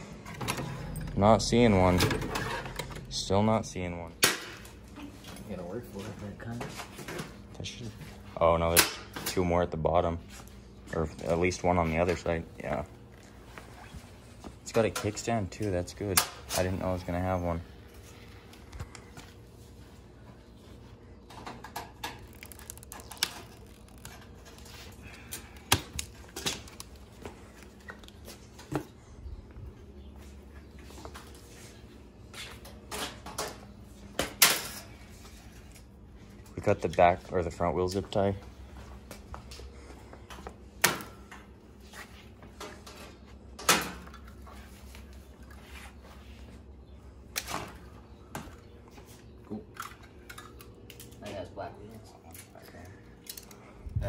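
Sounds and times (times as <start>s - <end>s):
plastic crinkling: 22.2s - 28.2s.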